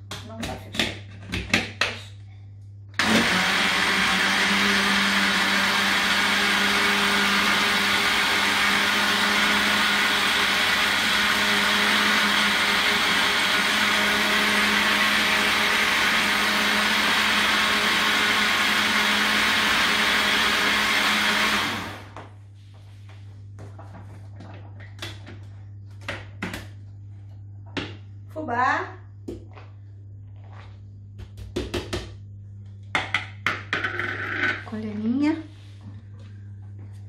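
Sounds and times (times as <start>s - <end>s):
blender motor running: 3.0s - 22.2s.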